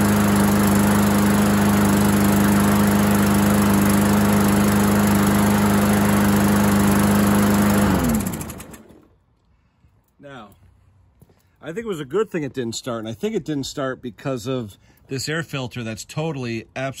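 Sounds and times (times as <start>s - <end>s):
engine spinning down: 0.0s - 9.1s
lawn mower engine running: 0.0s - 9.2s.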